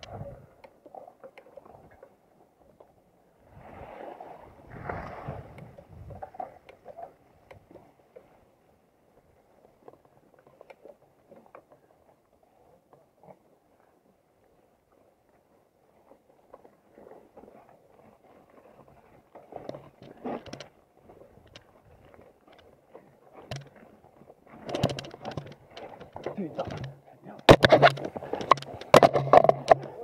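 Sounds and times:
bike clicking and rattling: 19.6s - 20.8s, 21.4s - 30.0s.

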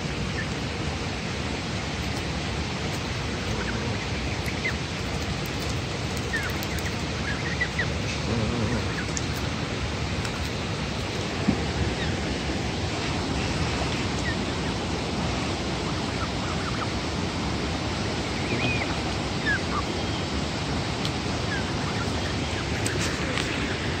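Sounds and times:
waterfall rushing: 0.0s - 24.0s
goslings peeping: 1.8s - 23.9s.

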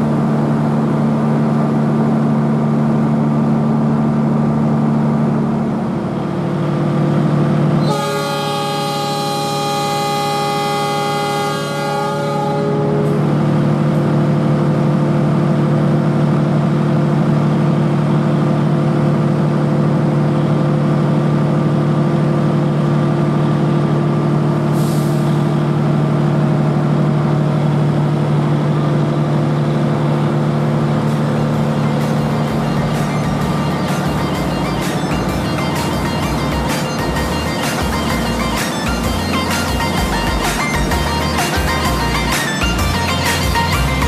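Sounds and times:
locomotive engine drone: 0.0s - 44.0s
train horn: 7.8s - 13.4s
brief air hiss: 24.7s - 25.6s.

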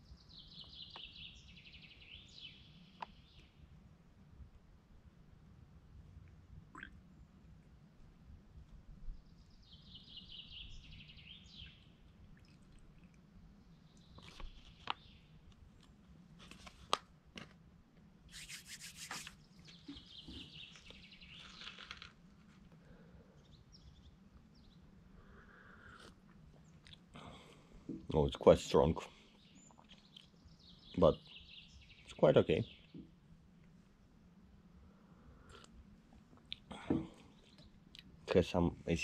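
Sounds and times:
faint birds chirping: 0.0s - 16.4s, 18.0s - 39.0s
paper packet crinkling: 21.4s - 22.2s.

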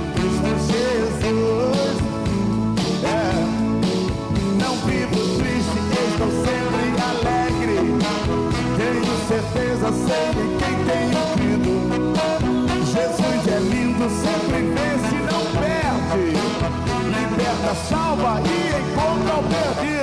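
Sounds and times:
live band playing: 0.0s - 20.0s
man singing: 0.0s - 20.0s.

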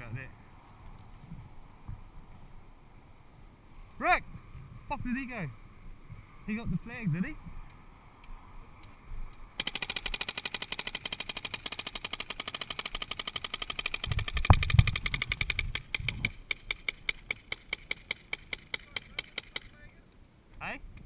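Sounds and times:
paintball marker firing: 9.6s - 19.8s.

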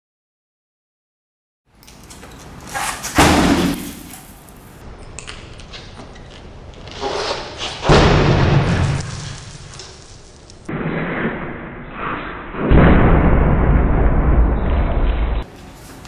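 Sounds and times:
low rumble: 10.7s - 15.4s.

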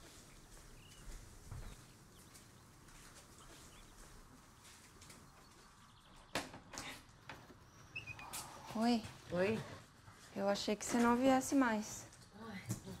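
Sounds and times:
faint bird chirps: 7.6s - 8.8s.

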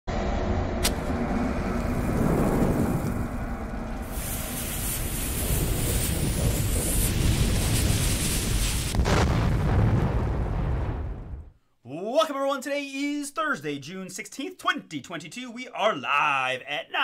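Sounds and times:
deep fire rumble: 0.1s - 11.6s
crackling fuse hiss: 1.8s - 9.1s.

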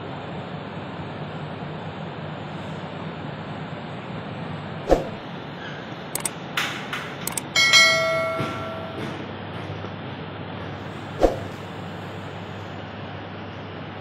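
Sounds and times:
clicks: 7.3s - 9.0s
bright ringing chime: 7.3s - 9.2s
sharp knock: 7.3s - 9.2s.

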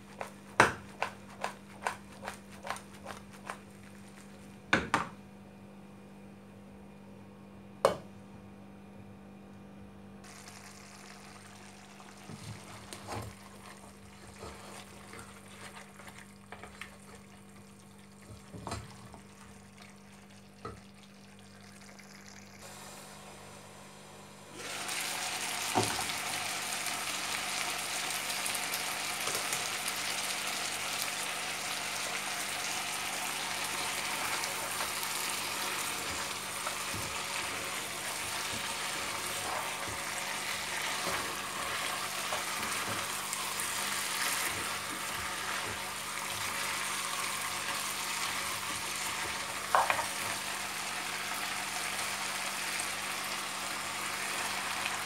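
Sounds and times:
wooden spoon stirring meat: 0.0s - 4.4s
meat sizzling in a pot: 10.3s - 16.0s, 24.6s - 55.0s.

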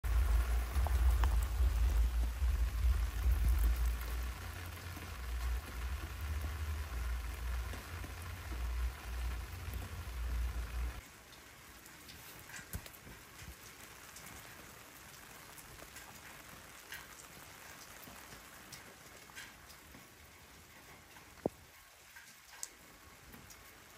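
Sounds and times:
drops ticking: 0.0s - 11.0s
heavy low rumble: 0.0s - 11.0s
steady rain: 0.0s - 23.9s.

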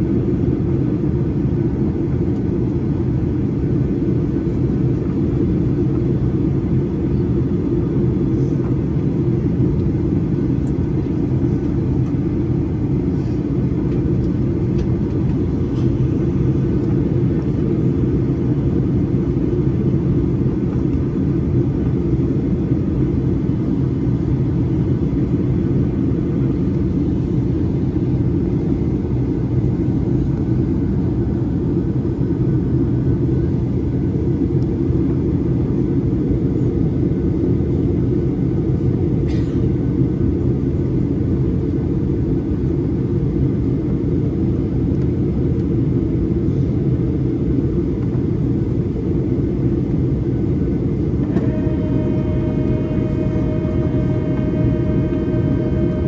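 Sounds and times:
jet engines rumbling in flight: 0.0s - 56.0s.

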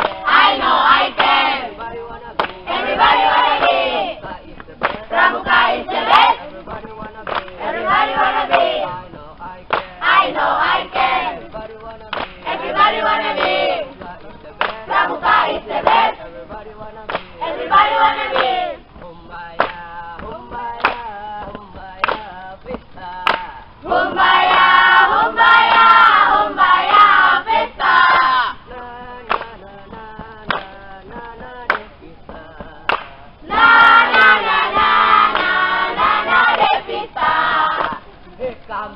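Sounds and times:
hand claps: 0.0s - 38.8s
group of young people singing: 0.0s - 38.9s.

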